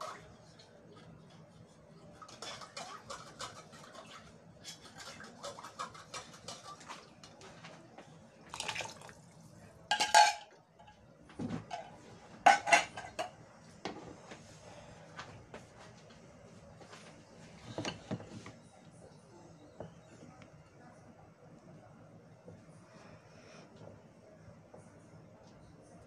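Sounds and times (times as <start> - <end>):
dishes and utensils clattering: 2.2 - 7.6, 9.9 - 14.2, 17.6 - 18.6.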